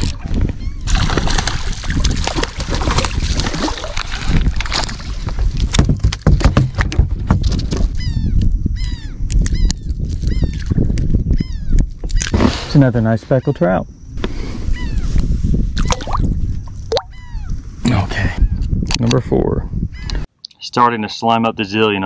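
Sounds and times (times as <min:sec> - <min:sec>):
bird gliding cries: 0:00.5 - 0:00.9, 0:14.6 - 0:15.1, 0:15.8 - 0:17.6
fish splashing at water surface: 0:00.9 - 0:05.1
knocks and thumps on boat deck: 0:05.6 - 0:07.8.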